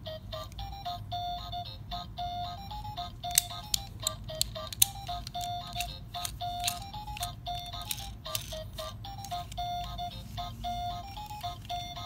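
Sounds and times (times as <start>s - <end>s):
light melody of short notes: 0.0s - 12.0s
sharp clicks: 3.2s - 9.9s.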